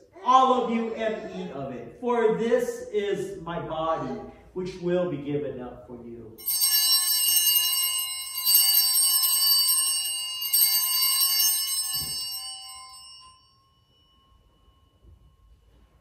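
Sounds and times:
altar bells ringing: 6.4 - 16.0.

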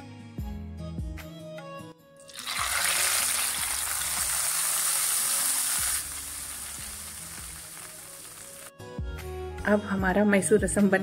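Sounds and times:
hot oil sizzling in liquid: 2.3 - 8.7.

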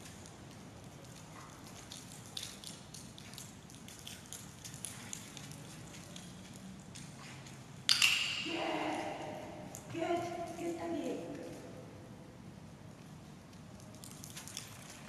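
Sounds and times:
footsteps and dog paws: 0.0 - 7.8, 12.9 - 15.0.

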